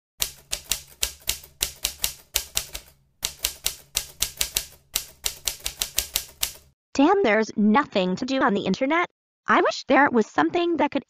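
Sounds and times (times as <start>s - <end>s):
keyboard typing clicks: 0.2s - 6.7s.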